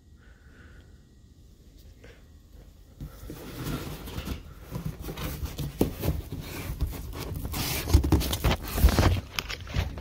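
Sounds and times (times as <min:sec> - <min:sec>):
cardboard box scraping and rustling: 0:03.2 - 0:10.0.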